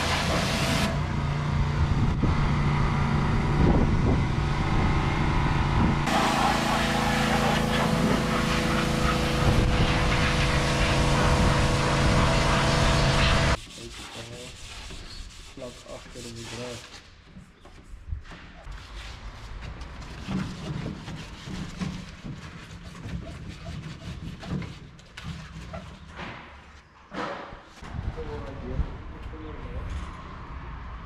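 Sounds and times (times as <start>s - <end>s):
pressure washer running: 0.0s - 1.1s, 6.1s - 13.6s
water jet hissing: 6.1s - 13.6s.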